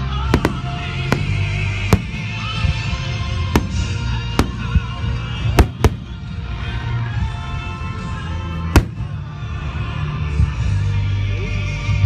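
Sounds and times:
fireworks bursting with sharp bangs: 0.0s - 6.9s, 8.5s - 9.6s
background music: 0.0s - 12.0s.

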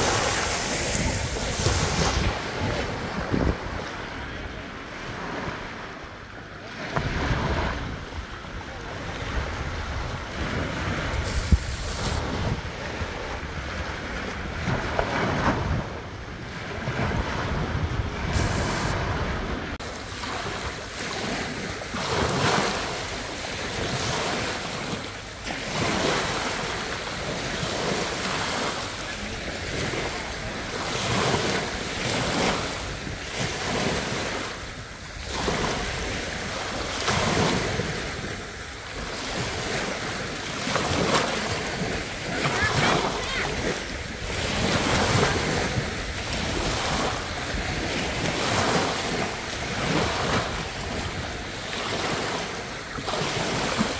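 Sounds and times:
small waves breaking on sand: 0.0s - 53.9s.

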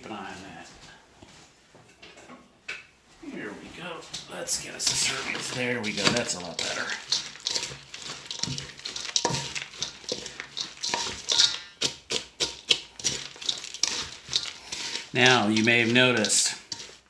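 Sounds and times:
spoon stirring crunchy mix in bowl: 4.5s - 17.0s.

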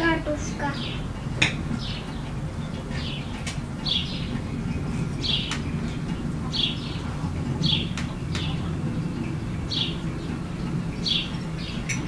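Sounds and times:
bird chirping: 0.0s - 12.0s
low background rumble: 0.0s - 12.0s.

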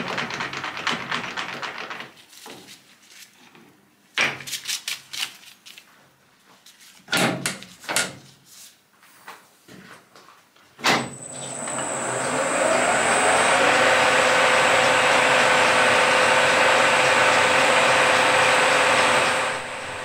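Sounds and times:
lathe spindle whirring down: 11.1s - 20.0s.

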